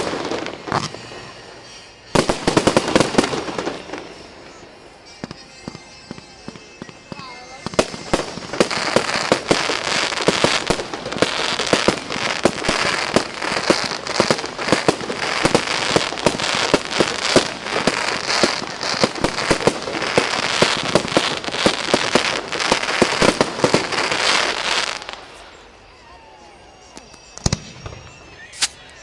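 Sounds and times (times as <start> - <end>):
fireworks bangs: 0.0 - 25.6, 26.8 - 29.0
crackling hiss of bursting shells: 6.7 - 25.1.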